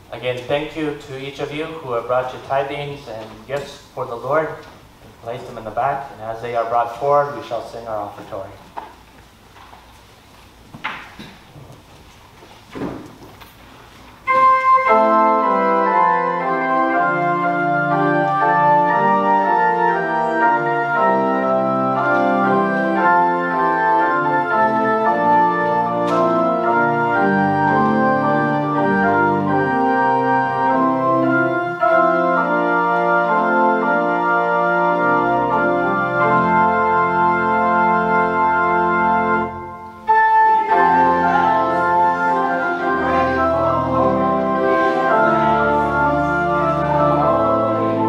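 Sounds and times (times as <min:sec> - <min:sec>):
church organ chords: 0:14.2 - 0:48.0.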